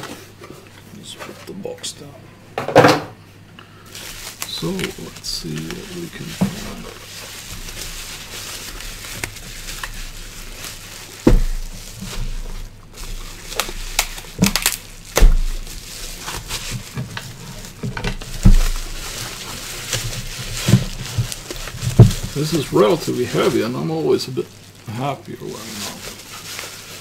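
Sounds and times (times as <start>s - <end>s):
bubble-wrap bag crinkling: 3.7s - 27.0s.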